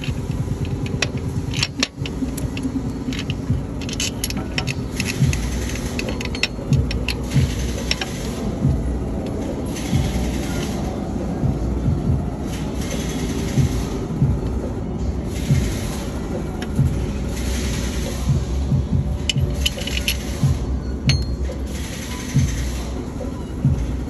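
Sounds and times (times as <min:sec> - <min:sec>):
metallic clicks and clinks: 0:00.0 - 0:08.4, 0:19.2 - 0:22.8
steady low rumble: 0:00.0 - 0:24.0.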